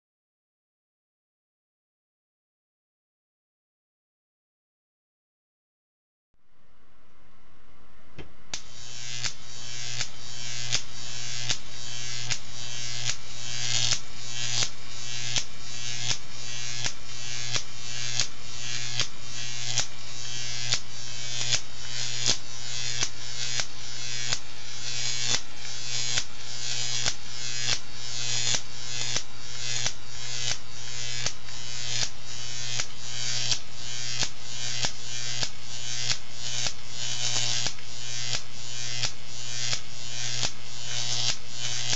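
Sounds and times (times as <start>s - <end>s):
electric arc buzzing and hissing: 8.5s - 41.9s.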